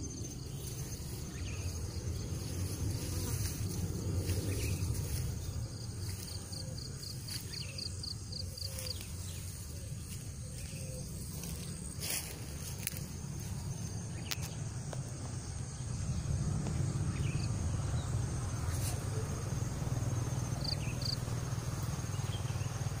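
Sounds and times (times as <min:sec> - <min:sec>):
insects shrilling: 0:00.0 - 0:14.6
low steady rumble: 0:00.0 - 0:23.0
short insect chirps: 0:00.0 - 0:23.0.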